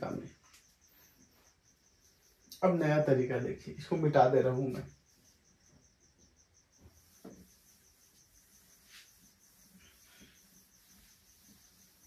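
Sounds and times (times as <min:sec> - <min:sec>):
cricket chirping: 0:00.0 - 0:12.0
cloth wiping whiteboard: 0:06.8 - 0:12.0.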